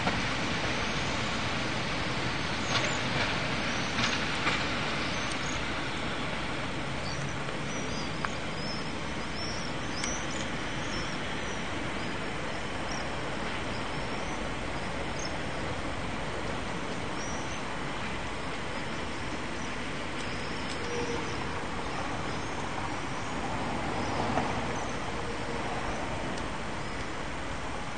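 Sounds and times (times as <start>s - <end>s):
railway yard background noise: 0.0s - 27.9s
small birds chirping: 7.0s - 12.1s.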